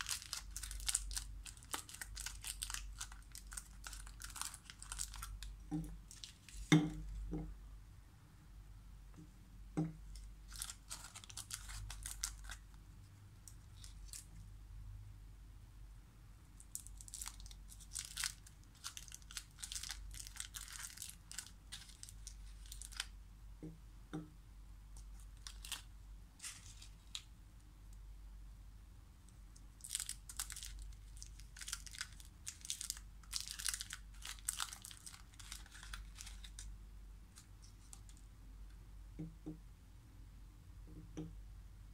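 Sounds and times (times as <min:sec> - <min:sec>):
foil wrappers crinkling: 0:00.0 - 0:06.7, 0:10.2 - 0:12.7, 0:16.7 - 0:23.1, 0:25.1 - 0:27.2, 0:29.8 - 0:36.7.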